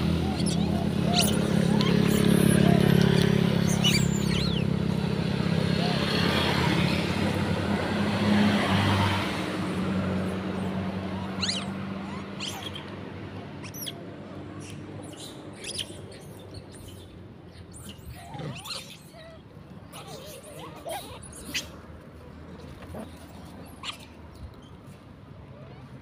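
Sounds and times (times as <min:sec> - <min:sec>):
vehicle engine humming: 0:00.0 - 0:26.0
short high squeaks and chirps: 0:00.2 - 0:04.7, 0:11.3 - 0:12.9, 0:13.6 - 0:14.0, 0:14.6 - 0:19.4, 0:23.0 - 0:25.0.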